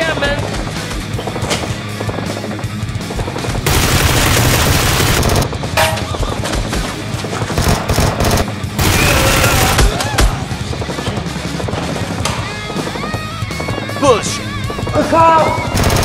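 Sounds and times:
background music: 0:00.0 - 0:16.0
automatic gunfire bursts: 0:03.2 - 0:05.5, 0:07.5 - 0:09.9, 0:15.7 - 0:16.0.

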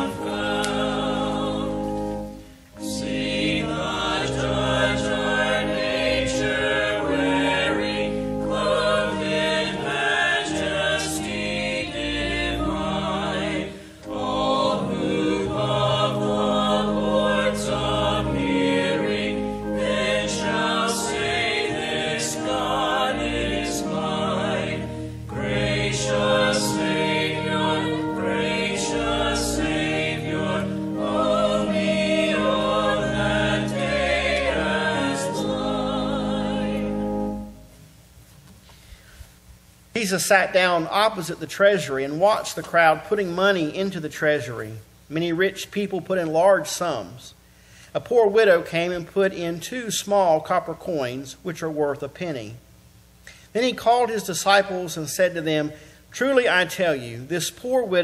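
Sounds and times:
small choir singing a hymn: 0:00.0 - 0:37.7.

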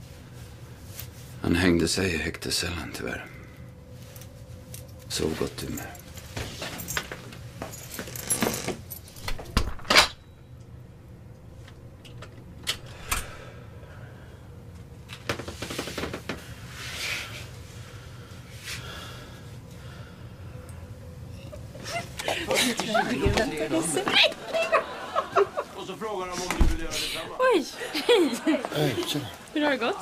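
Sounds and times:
keys jangling: 0:05.6 - 0:09.5.

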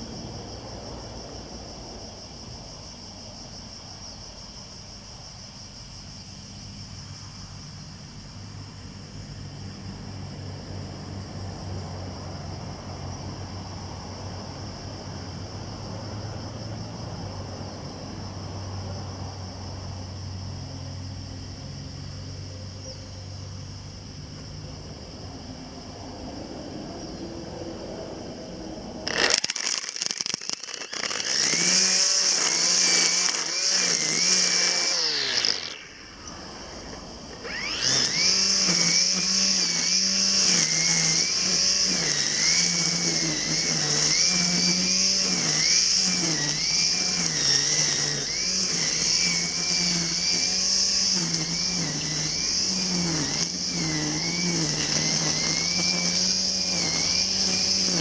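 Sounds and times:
brush cutter cutting grass: 0:29.0 - 0:58.0.

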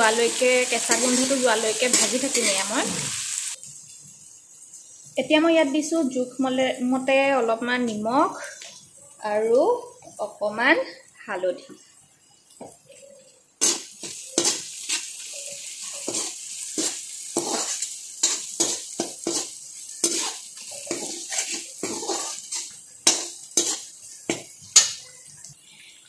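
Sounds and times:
oil sizzling: 0:00.0 - 0:26.0
spatula scraping metal pan: 0:13.6 - 0:25.0.

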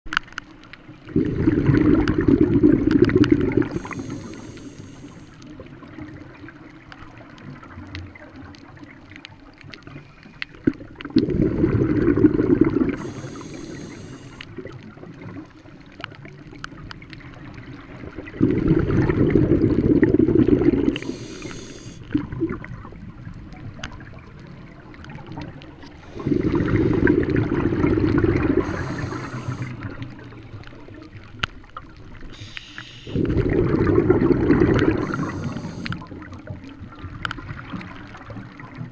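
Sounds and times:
bubbling exhalations underwater: 0:01.1 - 0:04.5, 0:10.6 - 0:15.5, 0:18.0 - 0:23.2, 0:25.1 - 0:30.6, 0:32.4 - 0:38.9
regulator hissing inhalation: 0:03.6 - 0:05.4, 0:12.9 - 0:14.5, 0:20.9 - 0:22.1, 0:26.0 - 0:27.2, 0:28.5 - 0:29.9, 0:32.3 - 0:33.5, 0:34.8 - 0:36.1.

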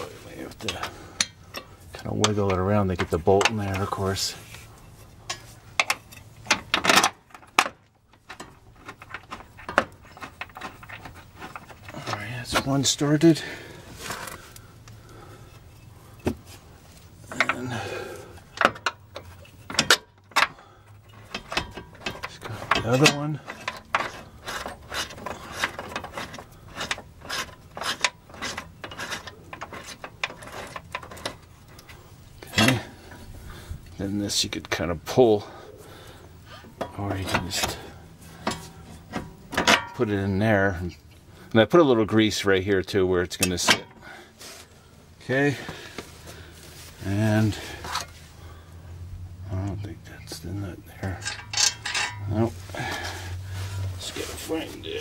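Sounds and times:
metal clicks and knocks: 0:00.5 - 0:04.1, 0:05.2 - 0:12.9, 0:18.4 - 0:32.8, 0:38.4 - 0:40.1, 0:51.0 - 0:52.3
metal scrape: 0:21.1 - 0:33.3, 0:51.0 - 0:55.0.

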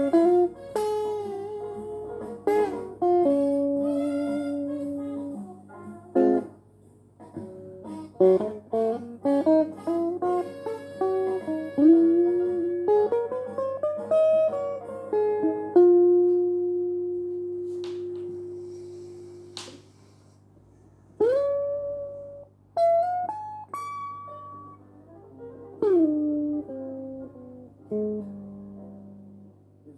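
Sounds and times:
electric guitar melody: 0:00.0 - 0:20.2, 0:21.2 - 0:29.9
steady low hum: 0:15.9 - 0:22.9.

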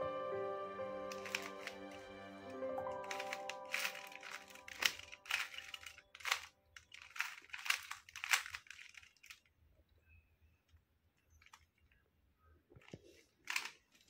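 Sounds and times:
background music: 0:00.0 - 0:06.2
plastic cube clacking: 0:01.1 - 0:02.0, 0:02.9 - 0:09.5, 0:12.8 - 0:14.0.

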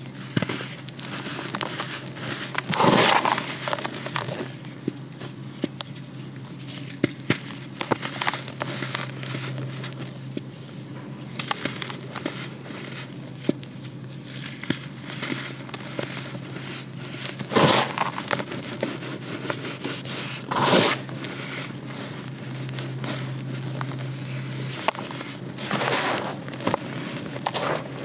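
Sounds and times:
dry dirt crunching between fingers: 0:00.0 - 0:28.0
dirt pouring into plastic basin: 0:00.1 - 0:04.5, 0:14.3 - 0:28.0.

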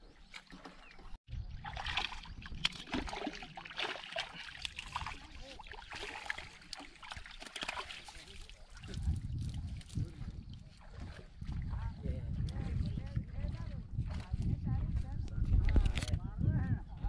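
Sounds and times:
fish splashing in water: 0:01.6 - 0:10.0.

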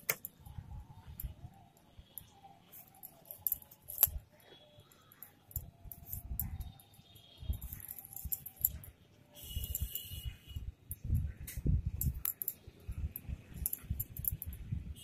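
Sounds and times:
cord rubbing: 0:02.2 - 0:08.9.

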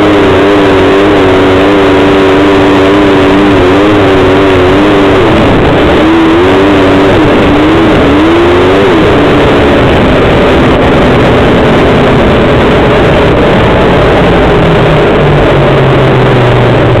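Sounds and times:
off-road vehicle engine running: 0:00.0 - 0:17.0.

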